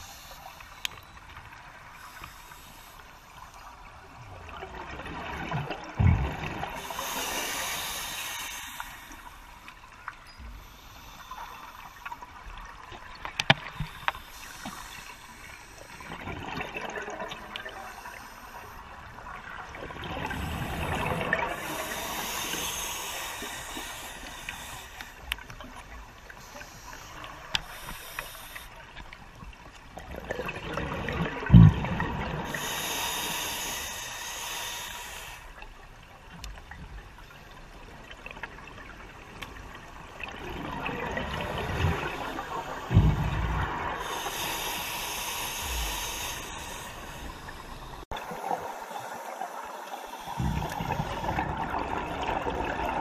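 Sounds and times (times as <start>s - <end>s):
exhaled bubbles underwater: 4.0s - 7.9s, 15.8s - 18.1s, 18.9s - 24.8s, 30.0s - 33.4s, 38.2s - 53.0s.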